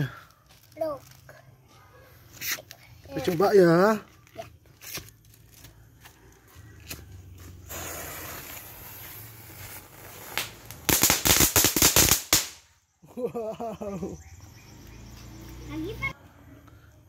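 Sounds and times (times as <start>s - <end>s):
firework crackling pops: 6.8s - 12.7s
firework fuse hissing: 6.9s - 12.7s.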